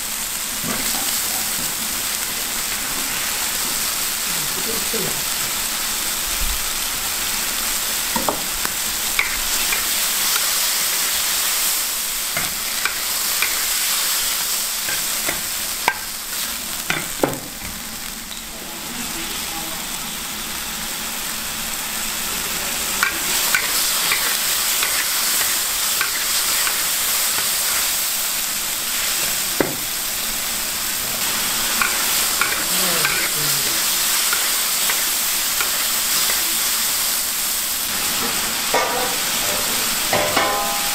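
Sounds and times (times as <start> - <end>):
seafood sizzling in a wok: 0.0 - 40.9
metal spatula scraping a wok: 23.1 - 28.0.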